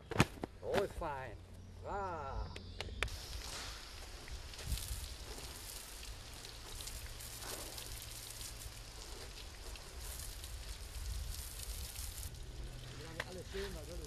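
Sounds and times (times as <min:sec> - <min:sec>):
water spattering on ground: 0:03.0 - 0:14.0.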